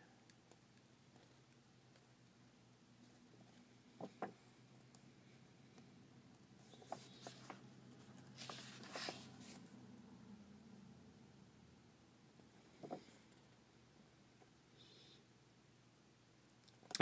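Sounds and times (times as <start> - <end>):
faint steady hum: 0.0 - 17.0
pages being turned: 6.8 - 9.6.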